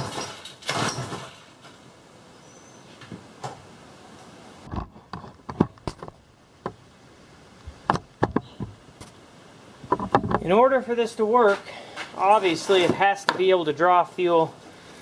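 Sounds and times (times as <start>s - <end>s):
handling knocks and clicks: 4.7s - 6.8s, 7.7s - 9.2s, 9.8s - 10.6s.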